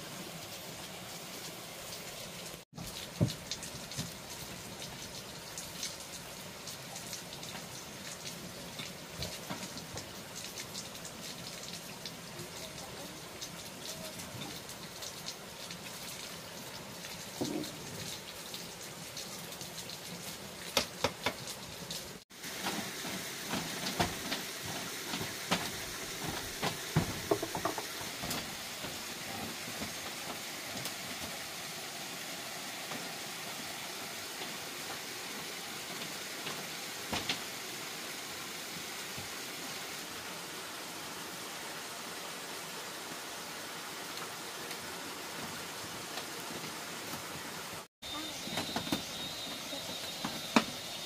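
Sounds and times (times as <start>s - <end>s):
sharp knocks and clicks: 26.3s - 28.4s.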